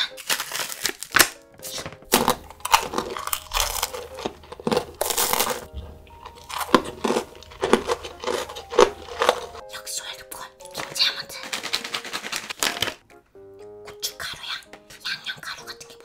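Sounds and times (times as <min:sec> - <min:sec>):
crunchy bites and chewing: 0:00.0 - 0:09.6
wrapper crinkling: 0:00.0 - 0:09.7, 0:10.6 - 0:13.1
light background music: 0:00.0 - 0:16.0.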